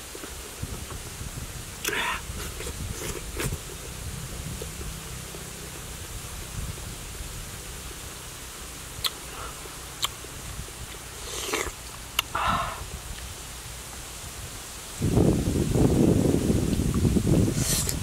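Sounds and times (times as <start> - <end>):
steady low rumble: 0.0 - 11.2.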